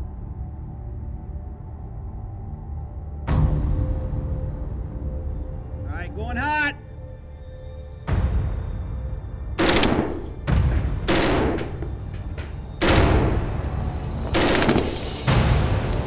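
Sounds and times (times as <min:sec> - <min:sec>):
machine gun firing bursts: 0:14.4 - 0:15.2.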